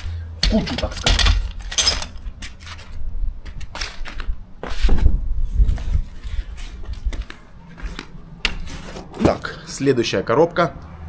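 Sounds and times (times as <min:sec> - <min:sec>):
metal fittings clattering: 0:00.4 - 0:02.2.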